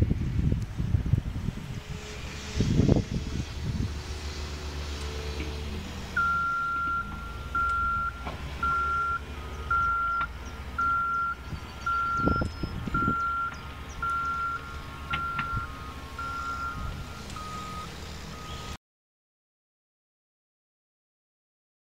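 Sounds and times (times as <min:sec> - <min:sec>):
diesel engine rumble: 0:00.0 - 0:18.8
fainter lower beep: 0:06.2 - 0:18.8
reversing alarm beeping: 0:06.2 - 0:18.8.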